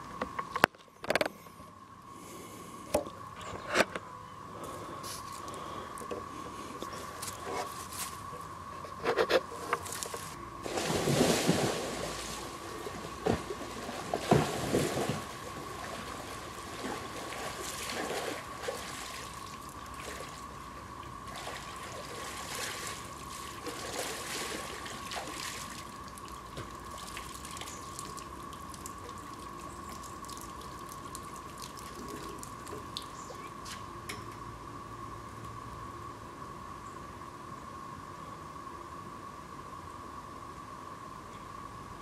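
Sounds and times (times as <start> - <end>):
water splashing from swimming: 10.6 - 20.6, 21.3 - 33.2
water dripping: 24.8 - 33.5.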